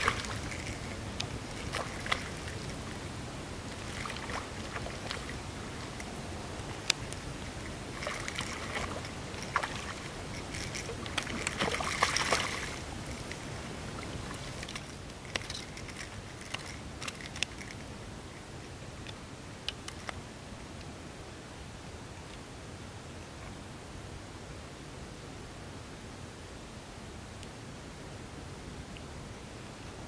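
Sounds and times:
fish splashing in shallow water: 0:00.0 - 0:17.8.

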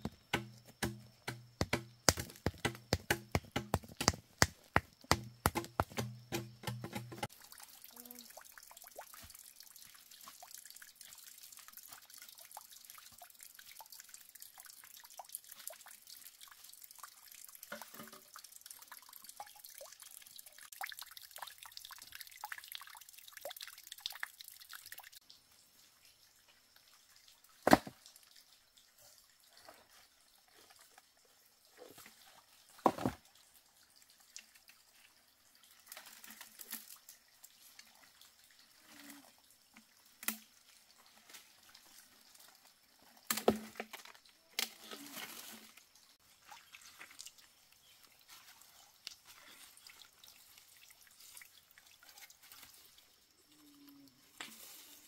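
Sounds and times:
sharp knocks: 0:00.0 - 0:07.3
water dripping and trickling: 0:00.0 - 0:55.0.

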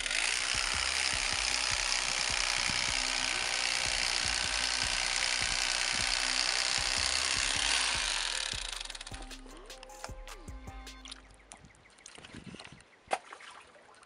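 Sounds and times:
electric fillet knife running: 0:00.0 - 0:09.1.

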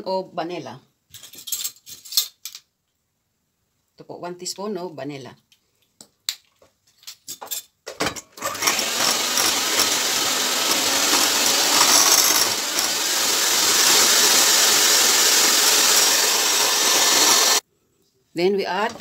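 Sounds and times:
electric hand mixer running: 0:08.4 - 0:17.6.

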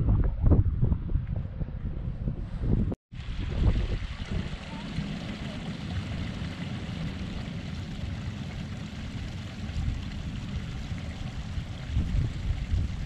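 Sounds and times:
wind buffeting microphone: 0:00.0 - 0:13.0
creek water running over rocks: 0:03.1 - 0:13.0.

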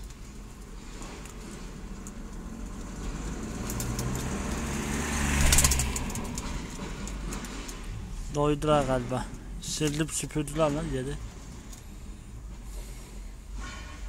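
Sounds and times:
vehicle engine passing by: 0:01.1 - 0:08.1.

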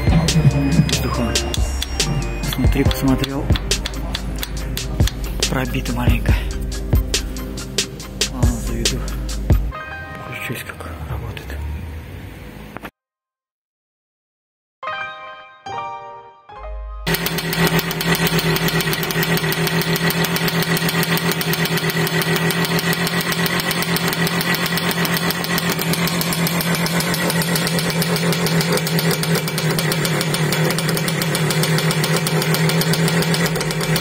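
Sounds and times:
motorcycle engine idling: 0:17.1 - 0:34.0.

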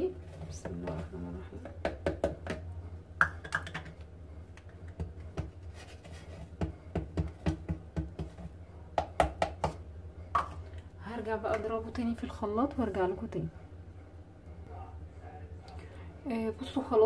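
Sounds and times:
bowl and spoon tapping jug: 0:01.6 - 0:04.0, 0:09.0 - 0:09.8, 0:10.4 - 0:10.6.

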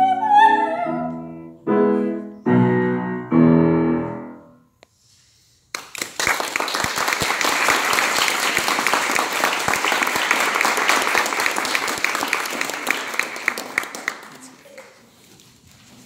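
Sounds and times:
audience applauding: 0:05.7 - 0:15.0.

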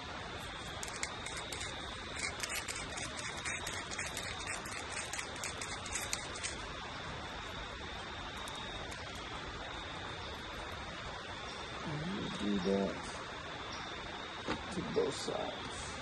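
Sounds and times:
steady high whine: 0:00.0 - 0:16.0
seasoning shaker rattling: 0:00.7 - 0:06.6.

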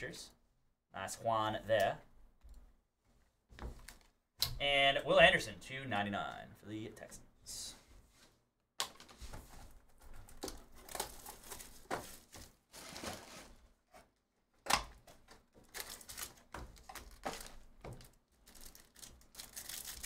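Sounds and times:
packaging rustling and crinkling: 0:09.5 - 0:13.6, 0:15.1 - 0:20.0.

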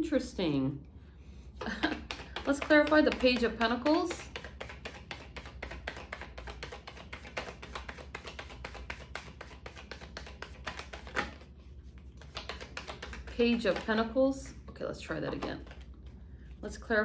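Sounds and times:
cards being shuffled: 0:01.6 - 0:14.0, 0:15.3 - 0:16.2.

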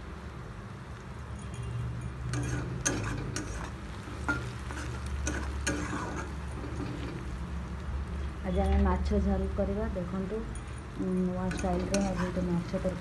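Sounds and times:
onions sizzling in hot oil: 0:02.2 - 0:13.0
spatula scraping and knocking pan: 0:02.3 - 0:07.3, 0:11.4 - 0:12.9.

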